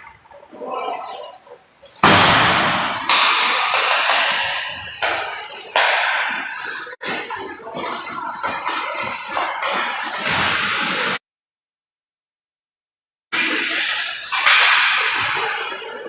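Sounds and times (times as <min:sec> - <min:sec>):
hockey sticks cracking on puck: 0:03.0 - 0:11.0, 0:13.4 - 0:15.7.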